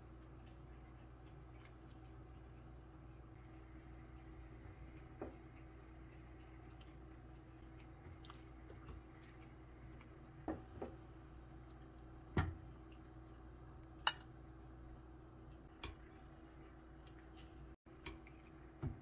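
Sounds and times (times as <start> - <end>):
faint steady hum: 0.0 - 19.0
metal spoon clinking on pot and plate: 14.0 - 14.3.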